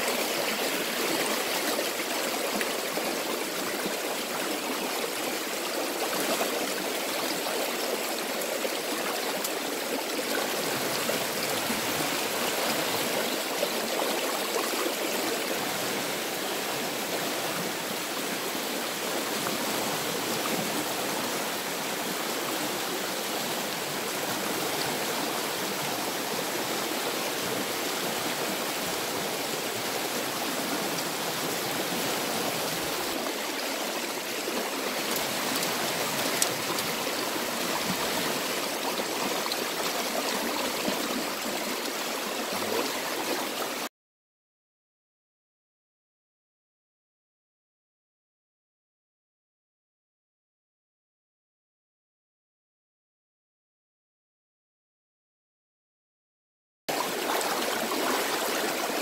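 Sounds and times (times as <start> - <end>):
river water rushing over rocks: 0.0 - 43.9, 57.0 - 59.0.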